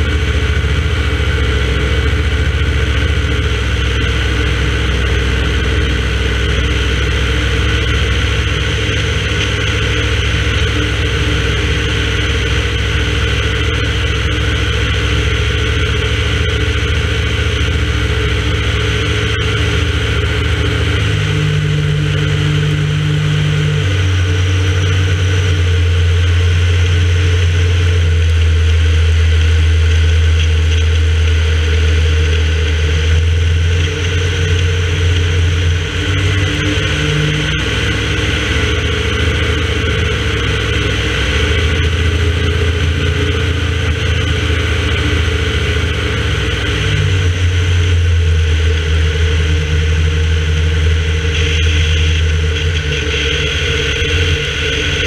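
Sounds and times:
light aircraft engine droning: 0.0s - 55.0s.

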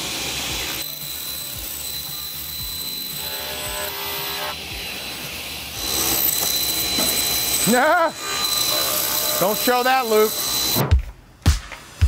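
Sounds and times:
table saw motor whine: 0.0s - 10.9s.

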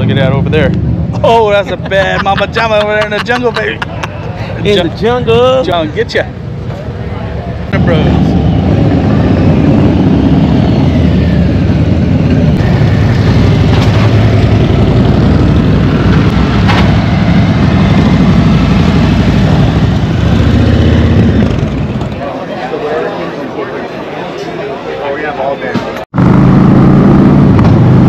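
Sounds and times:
motorcycle engine running: 7.7s - 22.2s, 26.2s - 28.0s.

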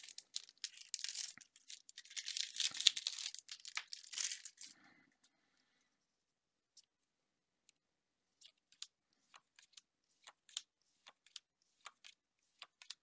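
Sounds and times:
cards clicking and snapping: 8.4s - 13.0s.

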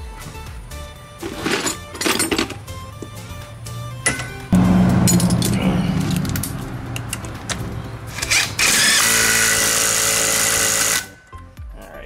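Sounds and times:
impact driver running: 8.1s - 11.1s.

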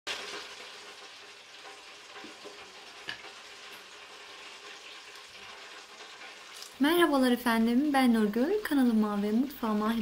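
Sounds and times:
frying oil sizzling: 0.1s - 10.0s
oil crackling pops: 2.2s - 6.8s.

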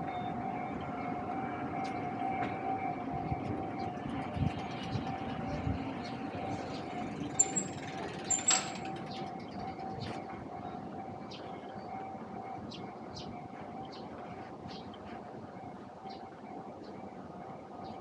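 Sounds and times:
low traffic rumble: 0.0s - 18.0s.

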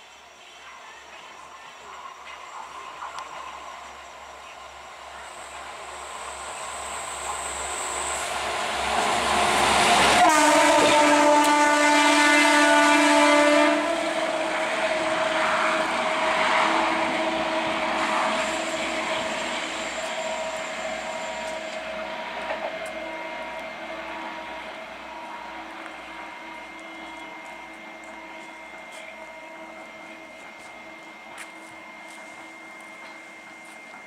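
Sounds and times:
rail car running noise: 0.0s - 34.0s
train horn blast: 10.1s - 15.2s.

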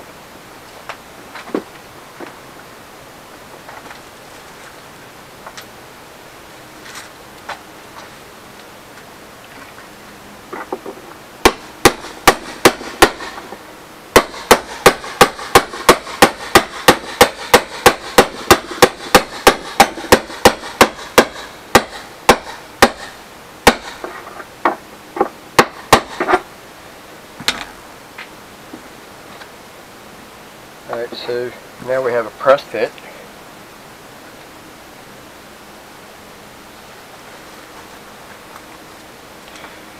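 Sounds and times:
hammer striking metal rod: 11.4s - 13.3s, 14.2s - 24.0s.

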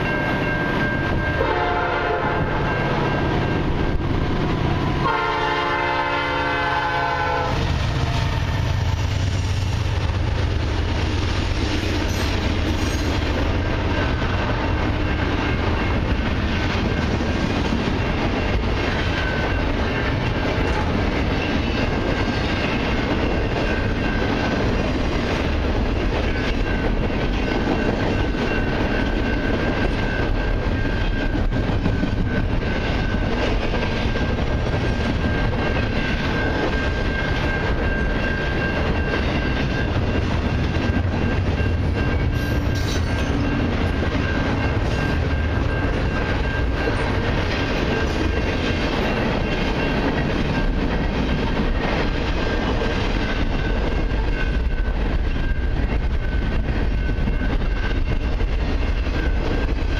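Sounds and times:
steady high tone: 0.0s - 5.1s
train wheels clattering on rails: 0.0s - 59.9s.

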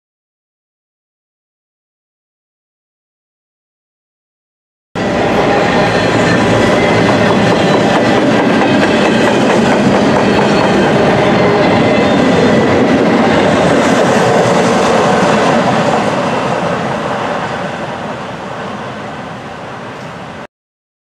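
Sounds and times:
freight train wheels clattering on rails: 5.0s - 18.7s.

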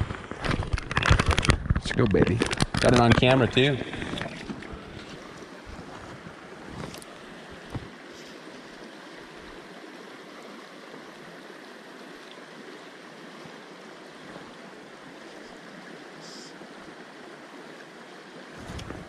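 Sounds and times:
shallow river water flowing: 0.0s - 19.0s.

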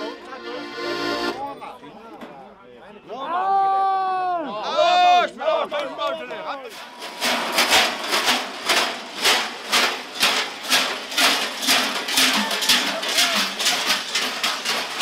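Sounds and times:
large bells clanging: 7.0s - 15.0s.

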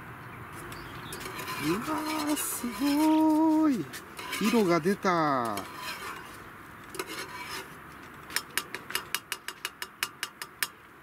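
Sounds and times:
spoon scraping cup: 1.0s - 9.7s.

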